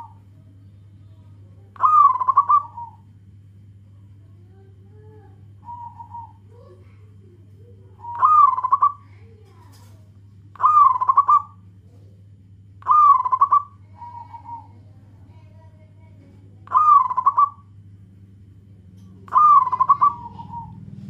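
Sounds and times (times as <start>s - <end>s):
dove cooing with stuttering trill: 1.8s - 3.1s, 5.6s - 6.8s, 7.7s - 9.0s, 10.5s - 11.7s, 12.8s - 14.9s, 16.6s - 17.7s, 19.2s - 21.0s.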